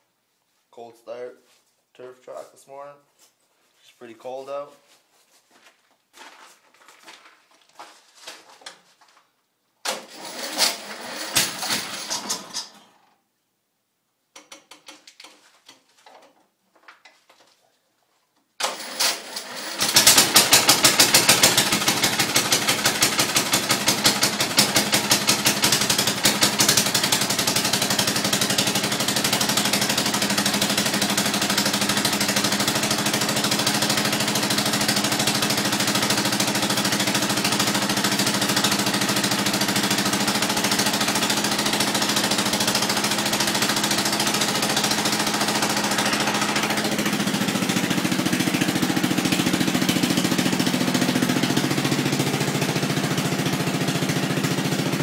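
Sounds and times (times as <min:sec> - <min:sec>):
lawn tractor engine starting and running: 0:09.8 - 0:13.1, 0:18.6 - 0:55.0.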